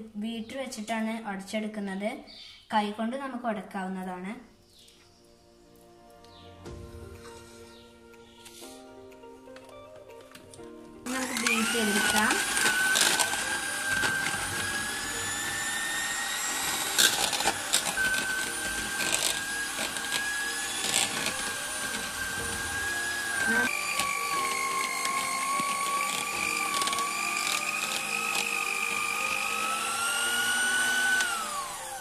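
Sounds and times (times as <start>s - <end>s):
electric hand mixer whining: 11.0s - 32.0s.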